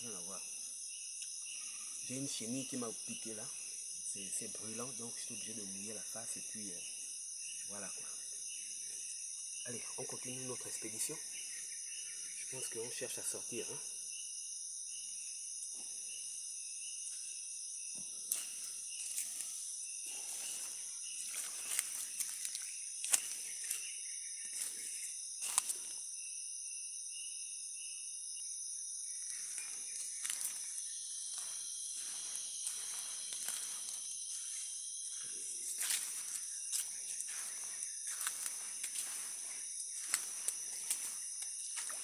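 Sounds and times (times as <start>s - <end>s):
insect drone: 0.0s - 42.0s
pulsed insect chirp: 0.0s - 42.0s
twigs snapping underfoot: 21.3s - 23.8s, 40.0s - 42.0s.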